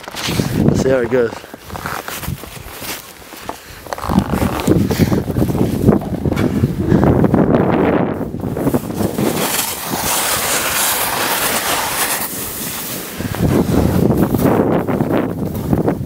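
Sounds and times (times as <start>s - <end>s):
skis scraping over snow: 0.0s - 16.0s
wind rushing over microphone: 0.2s - 2.8s, 3.9s - 16.0s.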